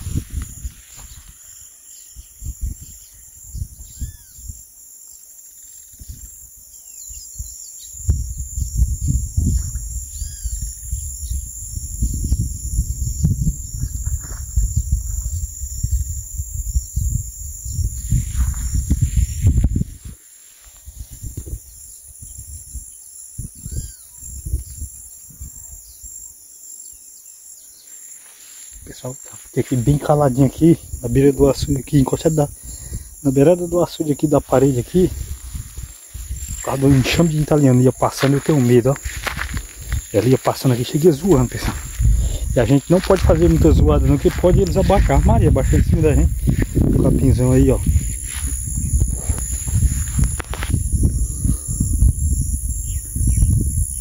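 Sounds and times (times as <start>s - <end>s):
low buffeting on microphone: 0.0s - 1.6s, 2.2s - 4.6s, 7.2s - 25.8s, 28.8s - 54.0s
high insect buzz: 0.0s - 54.0s
low rumbles and thuds: 11.9s - 20.1s, 39.0s - 40.2s, 41.3s - 53.8s
birds chirping: 28.8s - 47.8s.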